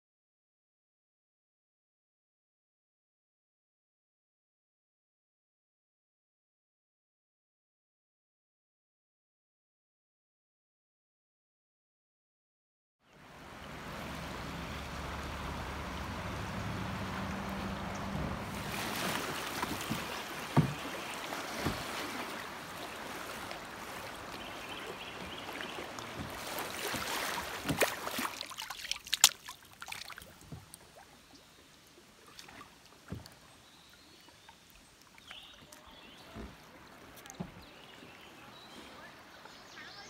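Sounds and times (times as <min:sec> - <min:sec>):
creek water rushing: 0:13.1 - 0:40.0
small taps and drips: 0:19.4 - 0:21.9, 0:25.5 - 0:31.4, 0:32.3 - 0:33.5
sharp knocks: 0:19.6 - 0:20.9.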